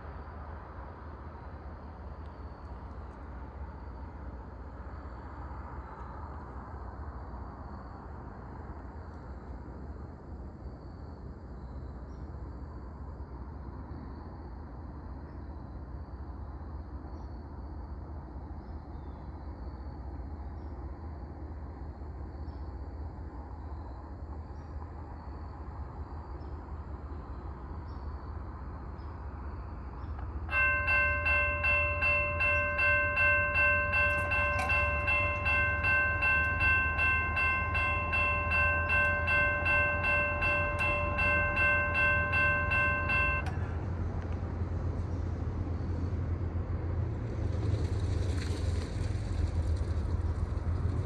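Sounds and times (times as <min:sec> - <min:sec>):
electronic crossing bell ringing: 0:30.5 - 0:43.8.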